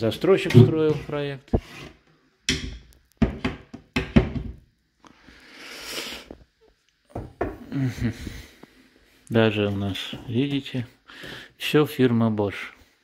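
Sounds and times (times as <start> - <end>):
cabinet doors thunking: 2.5 - 4.6.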